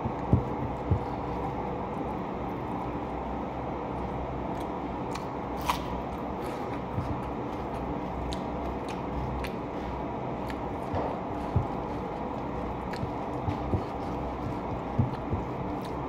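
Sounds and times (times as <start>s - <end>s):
fingers working food on plastic plate: 0.0s - 1.5s, 10.4s - 16.0s
low background hum: 0.0s - 16.0s
chewing clicks and smacks: 4.5s - 9.6s, 10.4s - 16.0s.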